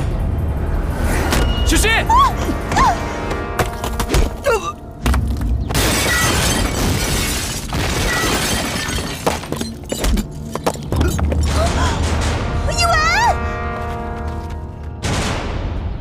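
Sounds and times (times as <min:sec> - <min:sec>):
drama soundtrack music: 0:00.0 - 0:06.4, 0:09.6 - 0:16.0
loud crashing and shattering: 0:05.7 - 0:10.0.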